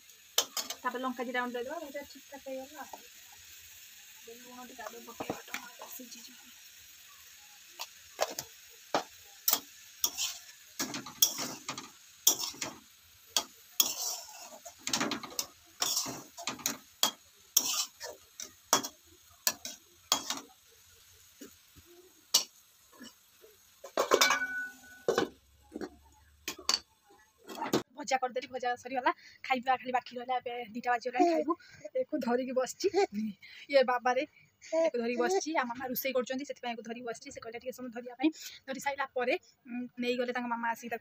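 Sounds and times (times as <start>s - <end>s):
metal spatula scraping a pan: 7.8s - 20.6s, 22.3s - 25.9s
pan clattering: 13.4s - 20.5s, 23.8s - 25.9s.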